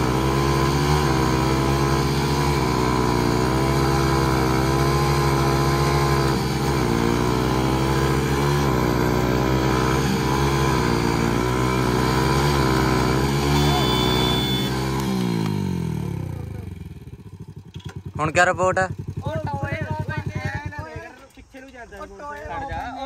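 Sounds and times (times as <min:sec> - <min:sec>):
motorcycle engines revving under load: 0:00.0 - 0:21.4.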